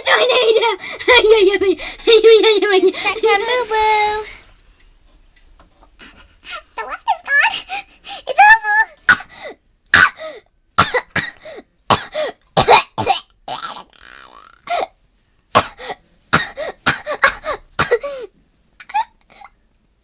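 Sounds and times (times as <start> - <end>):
person coughing: 10.0 - 13.6, 15.6 - 19.5.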